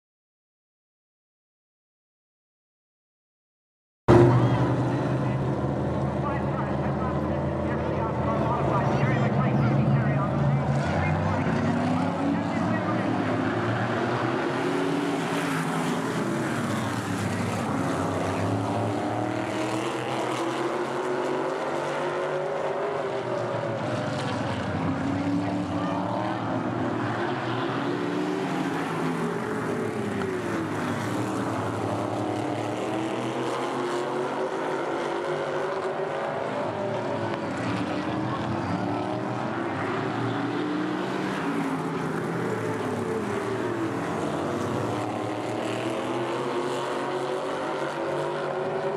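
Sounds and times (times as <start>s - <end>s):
race car engines passing: 4.1s - 48.9s.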